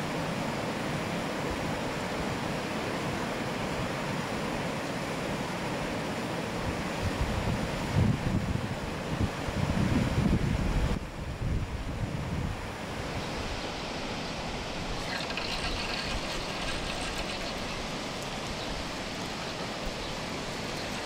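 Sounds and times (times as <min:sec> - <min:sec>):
wind buffeting microphone: 0:07.0 - 0:12.6
moving water: 0:12.5 - 0:21.0.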